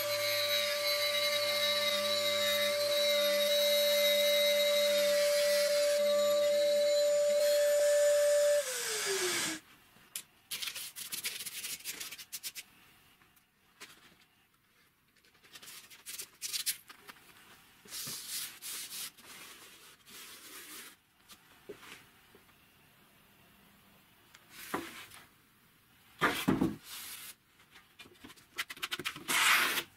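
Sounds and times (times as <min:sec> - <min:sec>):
angle grinder whining: 0:00.0 - 0:09.6.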